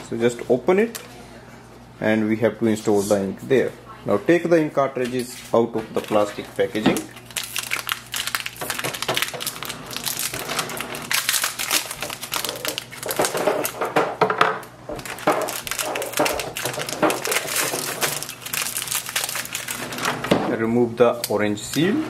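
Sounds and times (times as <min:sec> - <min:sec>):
plastic packaging crinkling: 0:05.4 - 0:14.0, 0:14.9 - 0:20.3.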